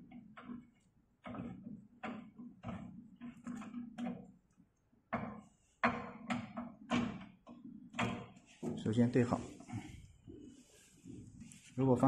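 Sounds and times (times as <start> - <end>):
pedal thread clicking and scraping: 0.0 - 4.6.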